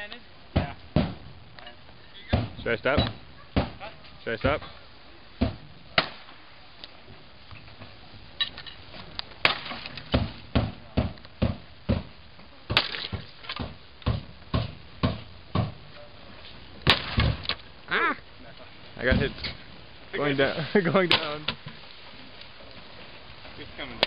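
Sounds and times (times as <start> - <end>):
sledgehammer hitting wooden boards: 0.5 - 1.3, 2.3 - 3.8, 9.4 - 12.1, 12.7 - 15.8, 16.8 - 17.6
wooden boards cracking: 9.4 - 11.6, 12.7 - 15.7, 16.8 - 17.6.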